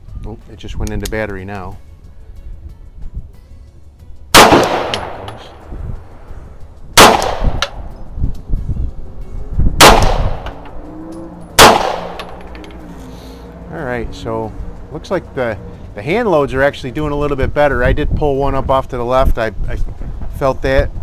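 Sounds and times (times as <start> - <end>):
pistol shots with echo: 4.3 - 5.6, 7.0 - 7.8, 9.8 - 10.6, 11.6 - 12.4.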